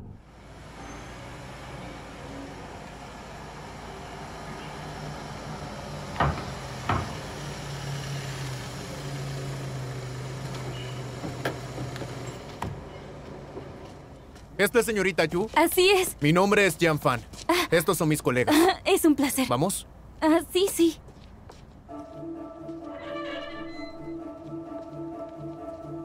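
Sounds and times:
car pulling up: 0:00.0 - 0:17.5
sharp knocks: 0:06.1 - 0:07.4.

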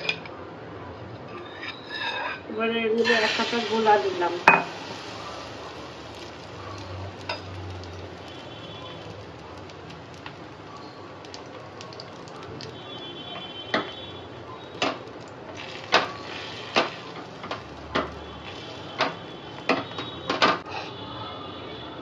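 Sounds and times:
batter sizzling in a pan: 0:03.0 - 0:20.2.

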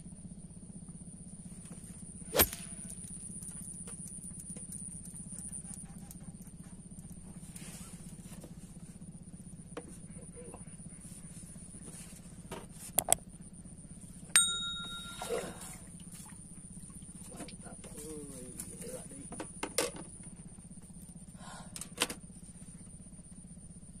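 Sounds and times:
faint high whine: 0:01.0 - 0:05.2, 0:13.0 - 0:19.4
low hum: 0:01.2 - 0:05.9, 0:13.0 - 0:17.2
metallic bell ding: 0:14.4 - 0:15.8.

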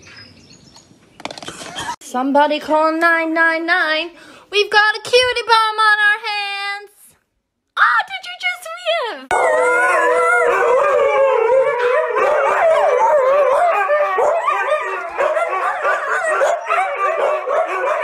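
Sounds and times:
huskies howling: 0:09.3 - 0:18.0.

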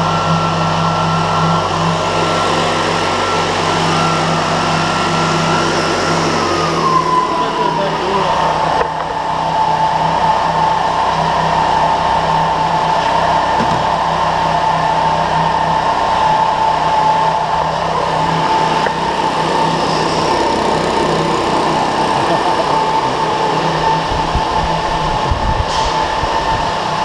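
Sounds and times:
leaf blower running: 0:00.0 - 0:27.0.

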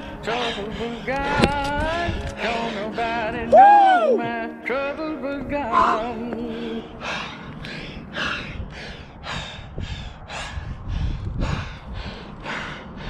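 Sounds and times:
person breathing hard: 0:00.0 - 0:02.9, 0:05.7 - 0:13.0.

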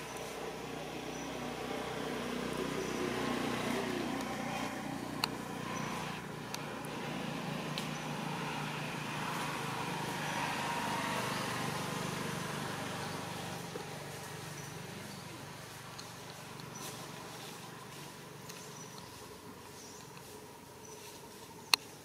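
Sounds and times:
low rumble of road traffic: 0:00.0 - 0:22.0
faint sharp clicks: 0:20.0 - 0:20.3.

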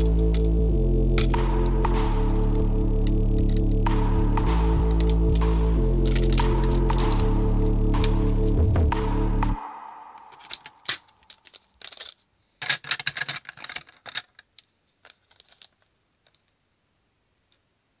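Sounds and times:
plastic toy track pieces clattering: 0:10.4 - 0:16.6.

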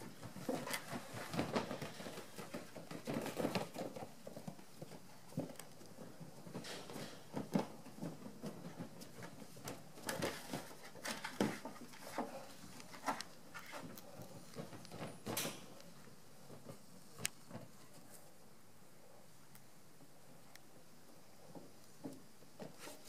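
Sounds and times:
claws scraping and knocking on plastic: 0:00.0 - 0:15.4.

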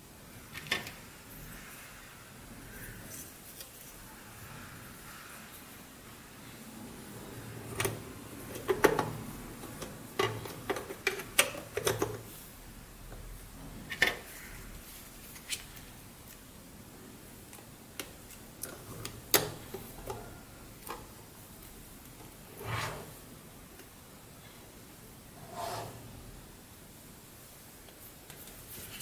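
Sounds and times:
plastic parts clicking and knocking: 0:07.7 - 0:12.3.

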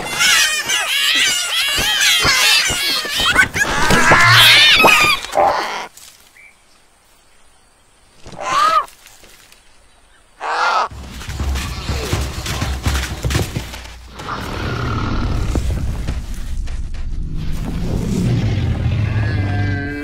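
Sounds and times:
cartoon vulture chicks squawking: 0:00.0 - 0:05.4
low rumble with thuds: 0:15.3 - 0:18.8.

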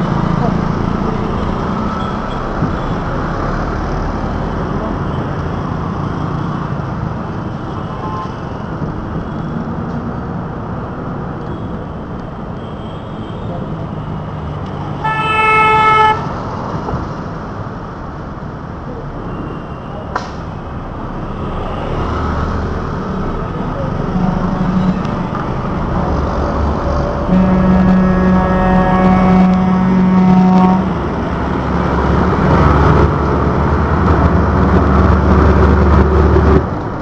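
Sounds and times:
city traffic road noise: 0:00.0 - 0:37.0
vehicle horn: 0:07.8 - 0:08.5, 0:15.0 - 0:16.3, 0:27.2 - 0:30.9.

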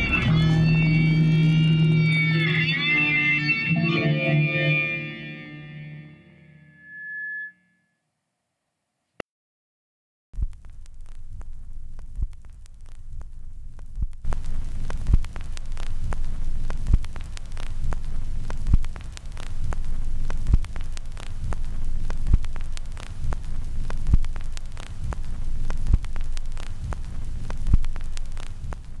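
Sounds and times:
low throbbing hum: 0:00.0 - 0:04.4, 0:10.4 - 0:29.0
crackling clicks: 0:10.4 - 0:29.0.

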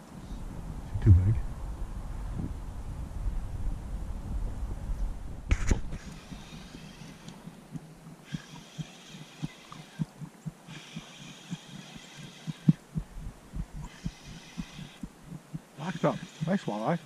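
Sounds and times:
fishing reel low thumps: 0:05.5 - 0:16.7
fishing reel whirring: 0:05.9 - 0:07.6, 0:08.2 - 0:12.8, 0:13.6 - 0:17.0.

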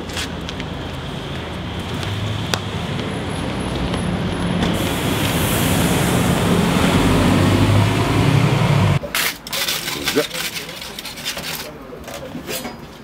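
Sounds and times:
street traffic: 0:00.0 - 0:13.0
bus engine droning: 0:00.1 - 0:09.0.

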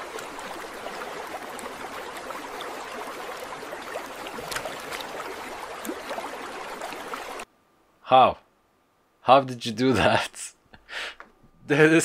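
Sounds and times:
water rushing into drain: 0:00.0 - 0:07.4
water splash: 0:00.0 - 0:07.4.

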